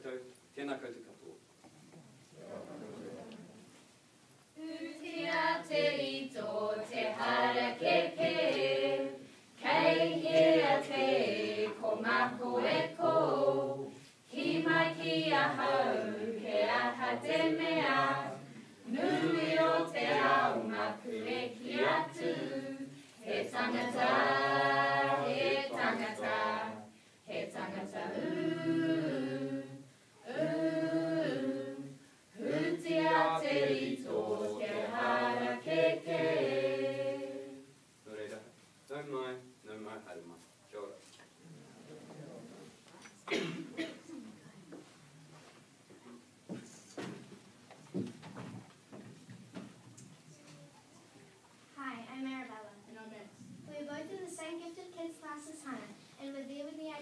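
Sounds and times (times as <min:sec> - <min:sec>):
group singing unaccompanied: 0:04.6 - 0:37.8.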